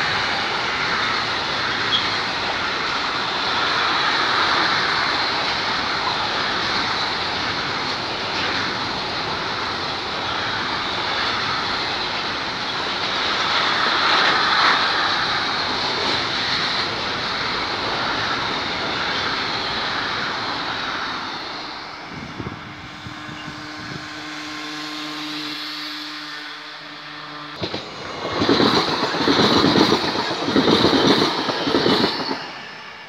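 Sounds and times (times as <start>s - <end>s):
freight train rolling past: 0.0s - 33.0s.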